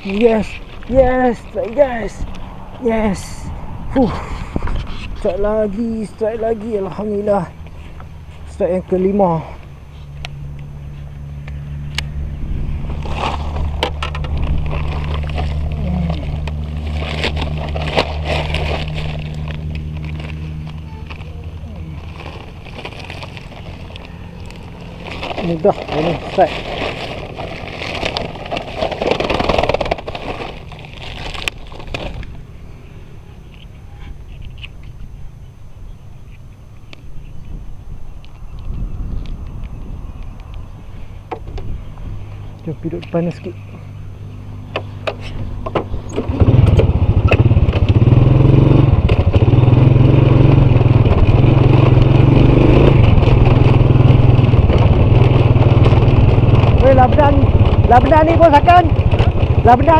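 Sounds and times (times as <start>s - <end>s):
scooter engine: 4.1s - 36.8s, 43.2s - 59.9s
plastic sack rustling: 13.0s - 32.3s.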